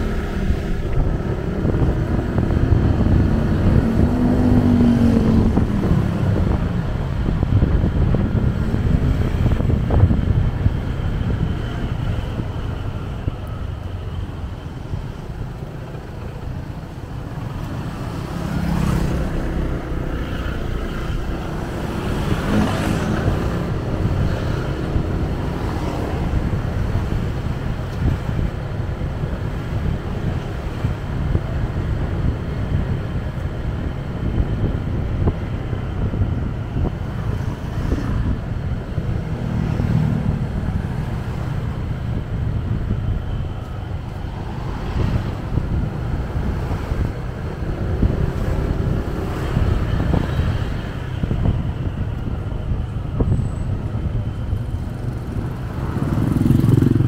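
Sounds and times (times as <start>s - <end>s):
motorcycle engine: 0.0s - 25.5s, 53.6s - 57.0s
wind rumble on microphone: 0.0s - 57.0s.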